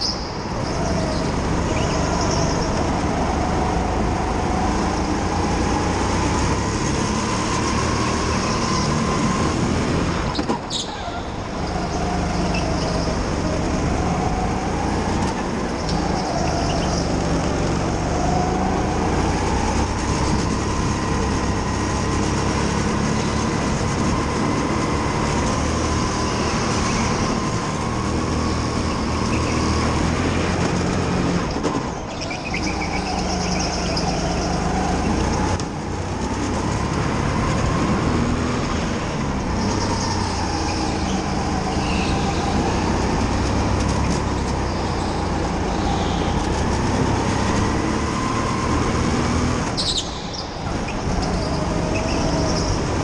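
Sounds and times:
go-kart motor running: 0.0 - 53.0.

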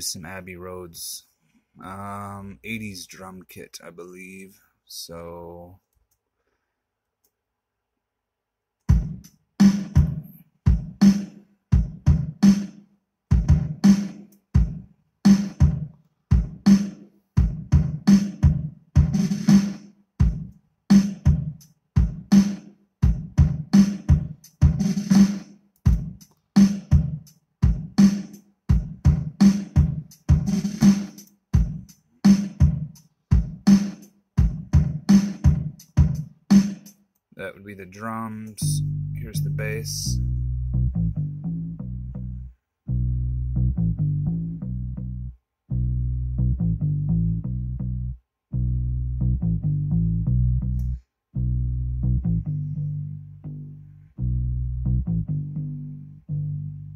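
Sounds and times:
hip-hop drum beat: 8.9 - 40.2.

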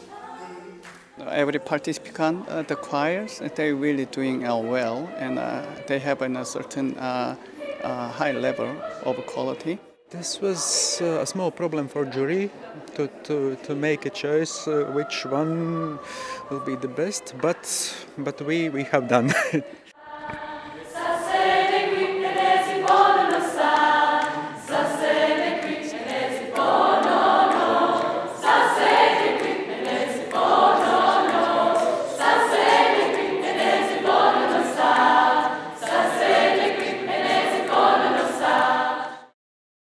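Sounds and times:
choir singing sustained chords: 18.1 - 39.4.

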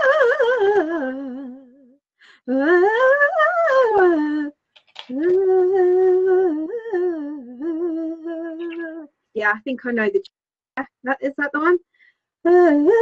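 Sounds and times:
woman singing vocal warm-up: 2.5 - 9.1.

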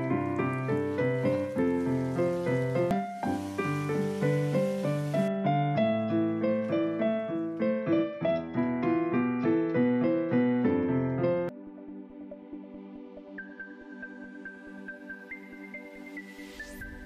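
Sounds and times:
piano melody: 0.0 - 17.0
hiss: 0.9 - 5.3.

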